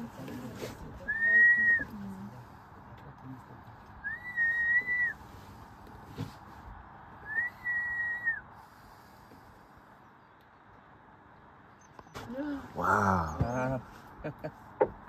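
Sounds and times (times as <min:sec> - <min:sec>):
long whistled notes: 0:04.0 - 0:05.2, 0:07.2 - 0:08.5.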